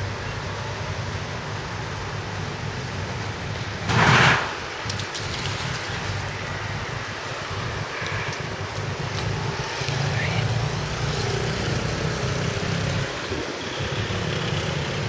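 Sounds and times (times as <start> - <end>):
outdoor background rumble: 0.0 - 15.0
short loud rush of noise: 3.9 - 5.4.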